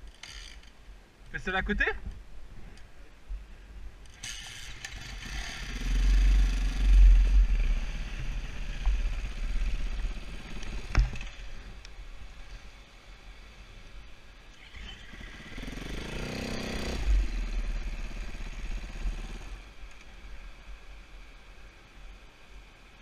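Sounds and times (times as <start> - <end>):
motorcycle engine running: 4.4 - 11.8, 14.6 - 19.8.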